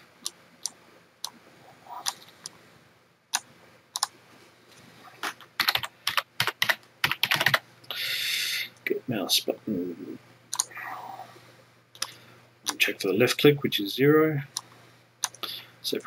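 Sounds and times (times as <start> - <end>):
keyboard typing: 0.2 - 2.6, 3.3 - 4.1, 5.2 - 7.6, 10.5 - 10.8, 14.5 - 15.4.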